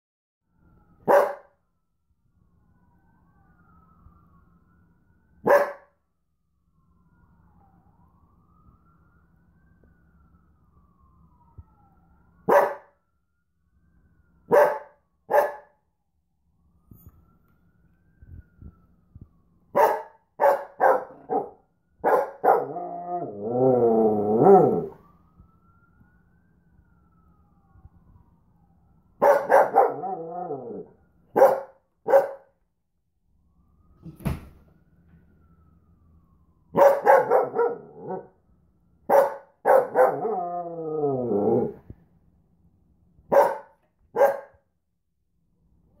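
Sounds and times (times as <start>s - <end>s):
faint ambulance siren: 0.4s - 46.0s
dog barking and howling: 1.0s - 1.5s, 5.4s - 5.9s, 12.5s - 12.9s, 14.5s - 15.7s, 19.7s - 25.0s, 29.2s - 32.5s, 36.7s - 38.4s, 39.1s - 41.8s, 43.3s - 44.6s.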